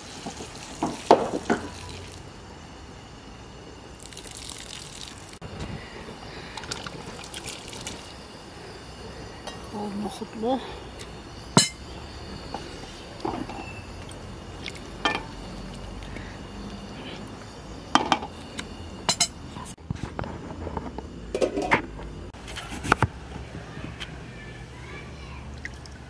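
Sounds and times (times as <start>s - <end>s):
utensils clinking against dishes: 19.1s - 19.4s.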